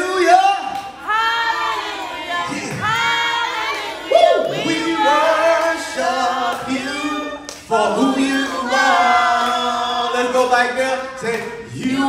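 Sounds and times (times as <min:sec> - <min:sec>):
man singing into a microphone: 0:04.6 - 0:12.0.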